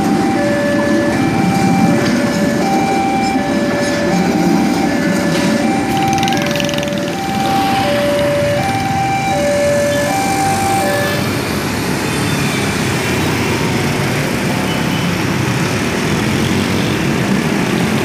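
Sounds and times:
level crossing alarm: 0.0s - 11.6s
scooters and cars passing: 0.0s - 18.0s.

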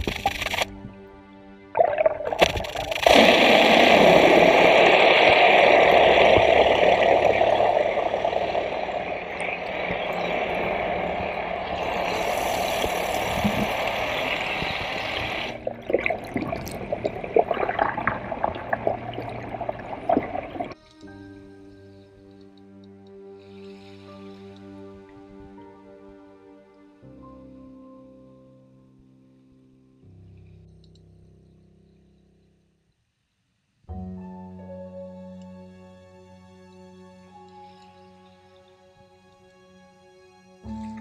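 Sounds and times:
water rushing and splashing: 1.8s - 20.8s.

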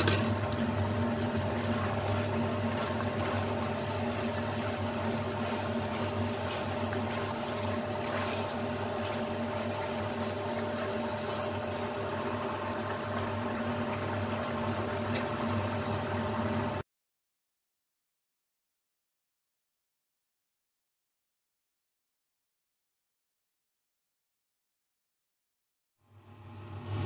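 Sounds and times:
sauce bubbling and sizzling: 0.0s - 16.8s
steady mechanical hum: 0.0s - 16.8s, 26.0s - 27.0s.

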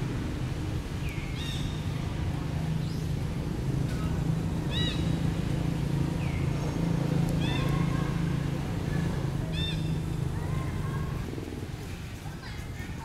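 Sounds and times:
monkeys giving high-pitched calls: 9.5s - 10.0s.

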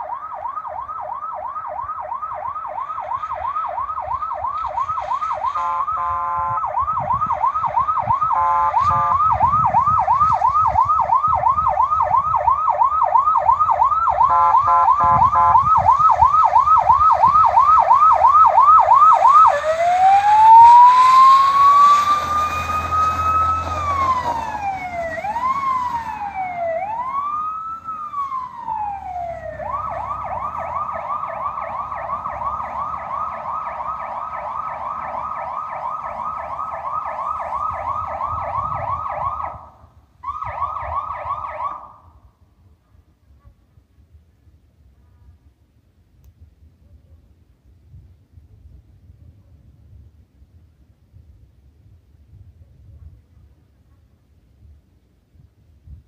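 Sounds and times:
electronic siren: 0.0s - 42.1s
horn blast: 5.6s - 6.6s, 8.3s - 9.3s.

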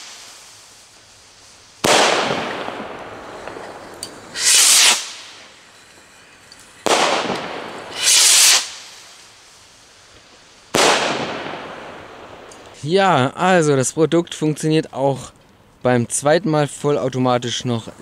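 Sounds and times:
firework rocket launch whoosh: 0.0s - 6.1s, 6.8s - 12.8s
rocket bursting bang: 1.8s - 5.5s, 6.8s - 9.2s, 10.7s - 12.6s.

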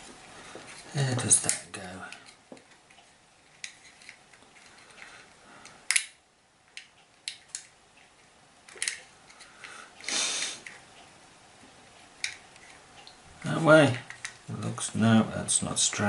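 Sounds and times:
plastic parts scraping: 0.4s - 6.1s.

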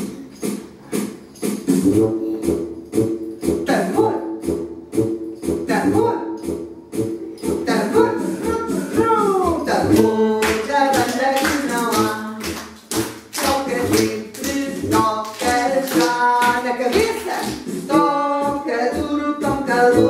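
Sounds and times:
steady beat of taps or claps: 0.0s - 3.8s, 9.8s - 20.0s
woman singing: 7.6s - 12.6s, 13.3s - 20.0s.

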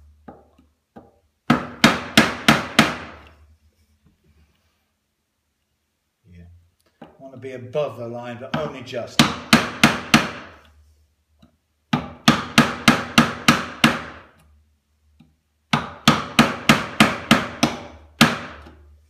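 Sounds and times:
hammer tapping a chisel into wood: 0.2s - 3.3s, 8.5s - 10.7s, 11.4s - 14.5s, 15.2s - 18.9s.

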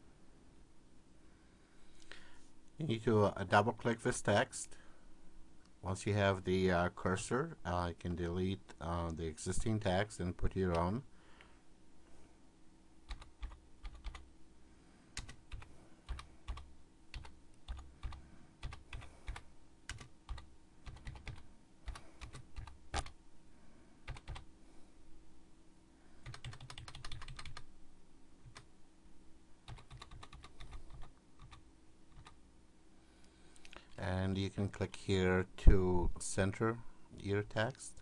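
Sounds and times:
typing on a computer keyboard: 13.1s - 14.2s, 15.2s - 23.2s, 24.1s - 24.5s, 26.2s - 27.6s, 28.4s - 28.7s, 29.7s - 32.4s.

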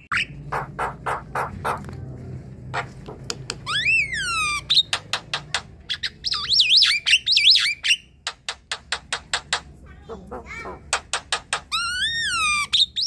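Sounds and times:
bird whistle rising and falling: 3.7s - 4.8s, 6.0s - 8.1s.

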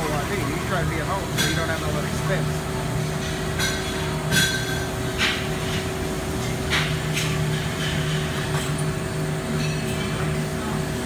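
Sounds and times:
band saw machine hum: 0.0s - 3.5s.

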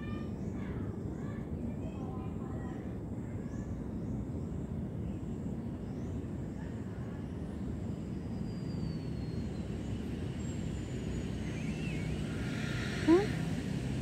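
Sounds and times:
low outdoor rumble: 0.0s - 14.0s
faint high gliding chirps: 7.7s - 14.0s.

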